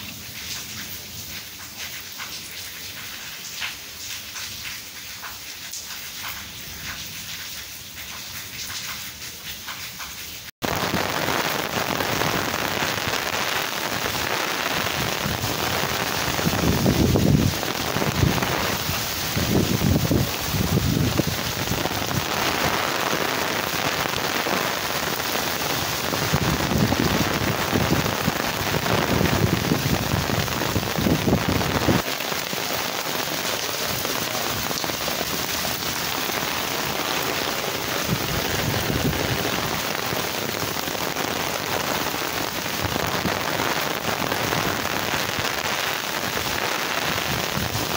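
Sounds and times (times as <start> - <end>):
heavy rain hiss: 10.4 - 47.9.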